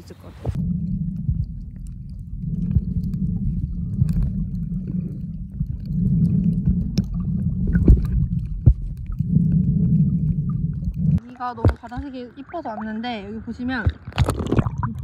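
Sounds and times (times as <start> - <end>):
muffled underwater water rumble: 0.0 - 15.0
underwater clicks: 0.5 - 12.8, 13.7 - 15.0.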